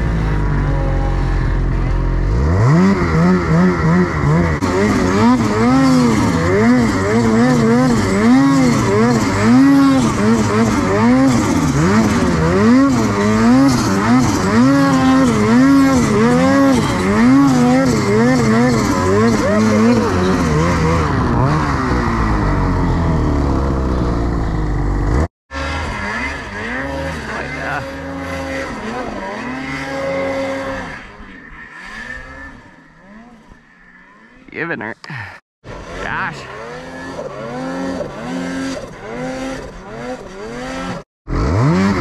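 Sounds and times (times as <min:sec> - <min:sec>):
snowmobile engine revving: 0:00.0 - 0:42.0.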